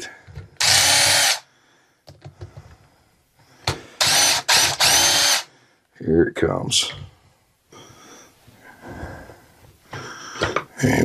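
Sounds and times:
cordless drill whining: 0.6 - 1.4, 4.0 - 5.5.

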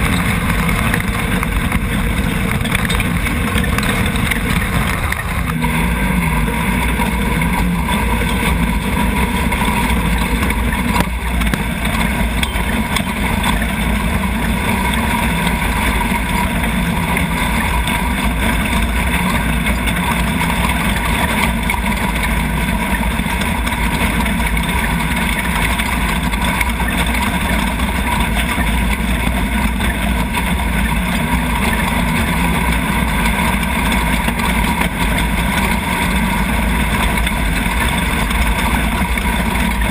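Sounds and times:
engine running hard: 0.0 - 39.9
tyre and chassis noise on dirt: 0.0 - 39.9.

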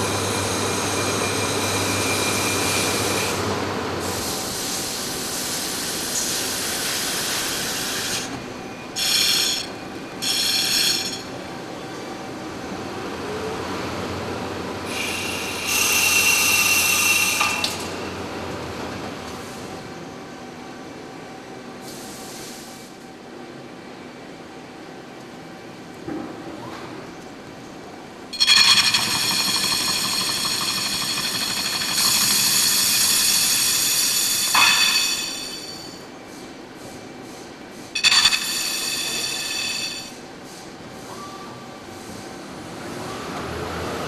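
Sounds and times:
high-pitched squeals: 28.3 - 36.0, 38.0 - 40.2
steady machine whine: 28.3 - 36.1, 38.0 - 40.2
lathe running and cutting: 28.4 - 36.0, 38.0 - 40.2.

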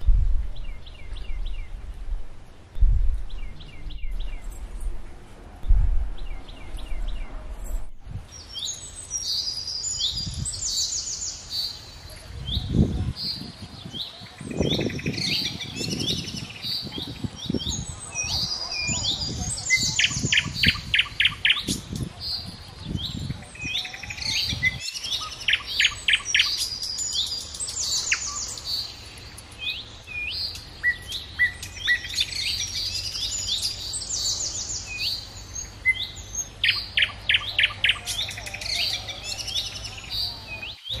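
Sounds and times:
low rustling thumps: 0.0 - 8.3
small birds chirping: 0.0 - 41.0.

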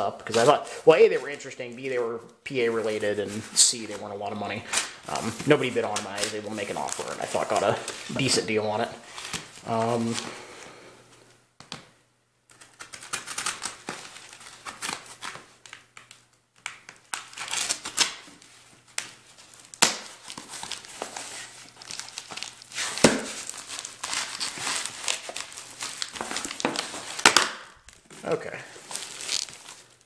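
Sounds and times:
plastic cling wrap crinkling: 0.0 - 10.6, 12.5 - 30.0
knife slitting packing tape: 12.5 - 15.8, 16.8 - 18.3, 19.7 - 27.7.

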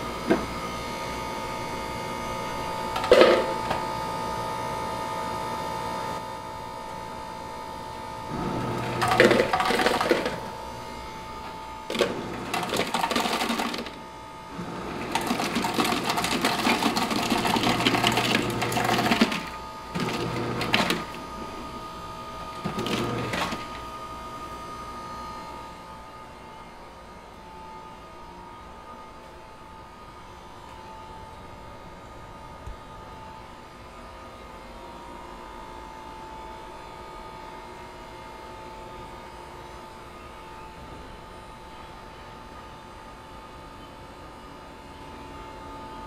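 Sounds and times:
steady hum with fixed tones: 0.0 - 15.9, 18.7 - 46.0
ice machine dispensing ice: 2.9 - 3.8, 8.3 - 21.7, 22.4 - 23.9.

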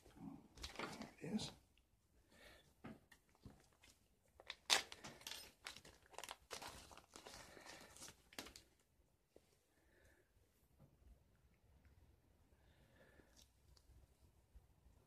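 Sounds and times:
plastic bag crinkling: 3.6 - 8.8.

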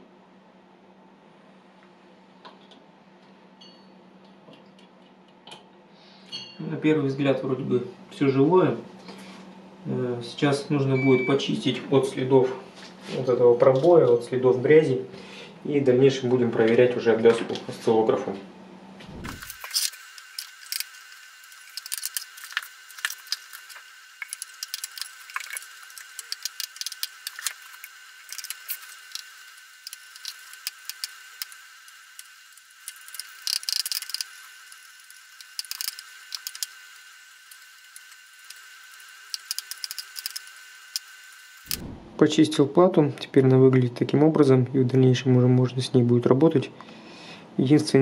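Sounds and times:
steady high-pitched whine: 18.2 - 42.8
scratching clicking and rattling: 19.3 - 31.6, 32.2 - 36.9, 37.5 - 41.8.

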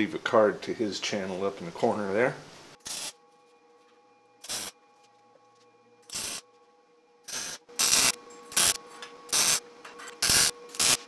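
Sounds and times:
welding bursts: 2.8 - 3.2, 4.4 - 4.8, 6.1 - 6.4, 7.3 - 9.6, 10.2 - 11.0.

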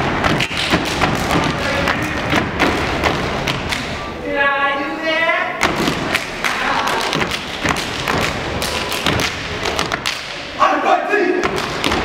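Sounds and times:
foot stomps: 0.0 - 4.0, 5.6 - 10.4, 11.4 - 12.0
hand claps: 0.2 - 3.9, 5.7 - 10.4.

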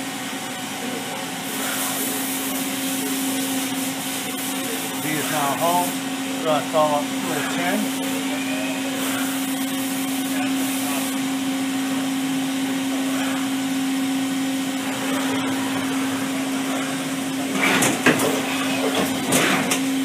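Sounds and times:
machining center humming and whining: 0.0 - 20.0.

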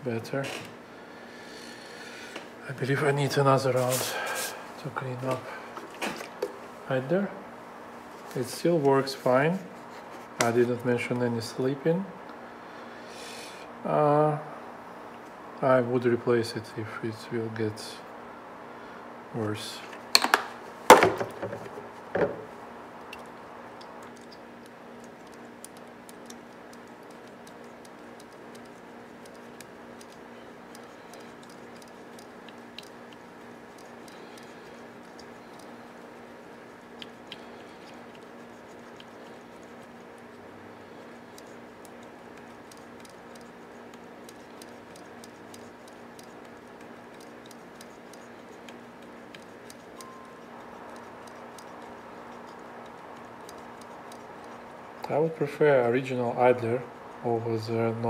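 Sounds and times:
steady low hum: 0.0 - 58.0
mechanism parts knocking and clicking: 20.0 - 22.5
faint ticks: 23.1 - 35.8.

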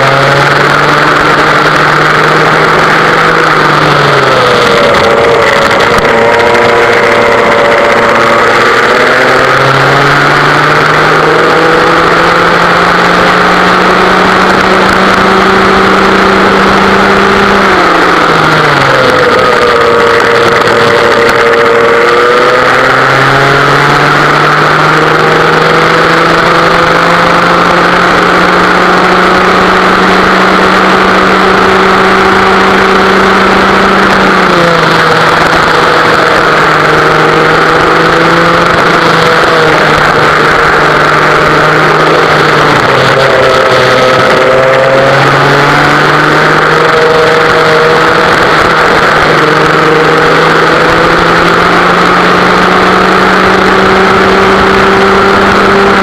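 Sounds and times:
kart engine racing: 0.0 - 56.0.

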